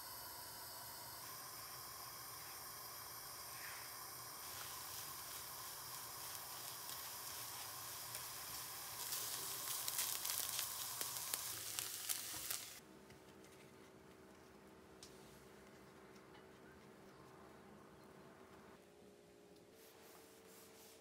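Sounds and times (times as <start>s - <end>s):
eggs sizzling in butter: 0.0s - 12.8s.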